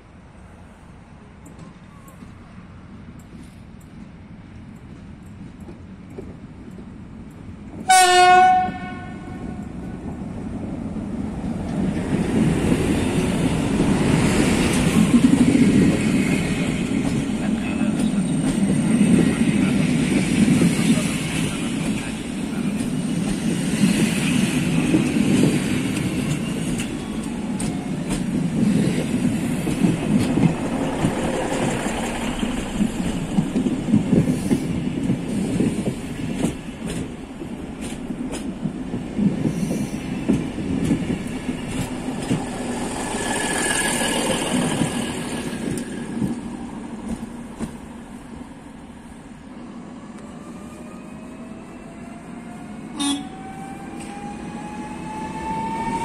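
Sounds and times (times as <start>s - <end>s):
train wheels rumbling on rails: 0.0s - 56.0s.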